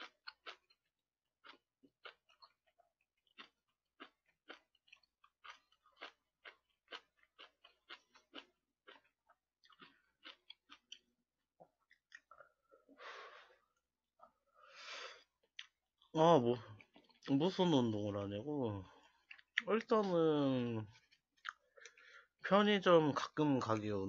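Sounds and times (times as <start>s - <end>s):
wet chewing: 0.0s - 12.6s, 16.5s - 18.1s, 18.8s - 20.2s, 20.9s - 22.2s.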